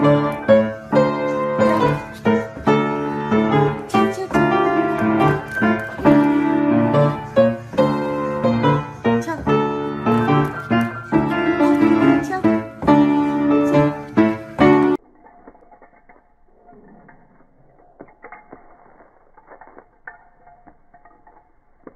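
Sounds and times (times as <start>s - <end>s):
piano notes and chords: 0.0s - 15.0s.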